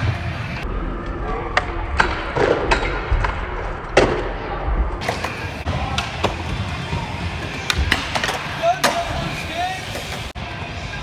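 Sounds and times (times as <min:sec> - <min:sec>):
skateboard wheels rolling: 0:05.0 - 0:11.0.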